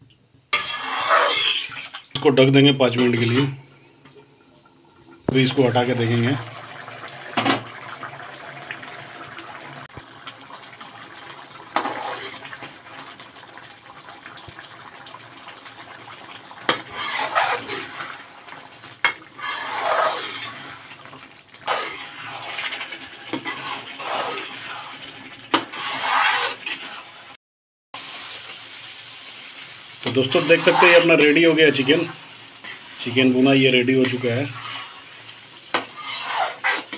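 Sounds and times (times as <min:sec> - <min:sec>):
metal spatula scraping a pan: 0:00.5 - 0:02.0, 0:11.8 - 0:12.4, 0:16.7 - 0:18.2, 0:19.0 - 0:20.9, 0:21.6 - 0:27.4, 0:30.1 - 0:33.0, 0:33.9 - 0:36.9
gravy simmering in a pan: 0:00.6 - 0:02.2, 0:05.4 - 0:27.4, 0:28.0 - 0:36.9.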